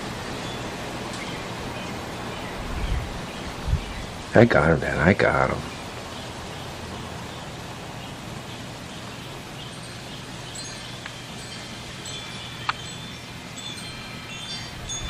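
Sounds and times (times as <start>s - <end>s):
wind chimes tinkling: 0.0s - 1.4s, 9.0s - 15.0s
steady wind: 0.0s - 15.0s.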